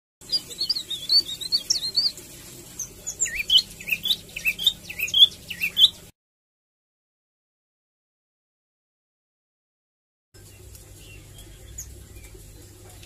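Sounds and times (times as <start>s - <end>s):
songbird chirping: 0.2s - 6.1s, 10.4s - 13.0s.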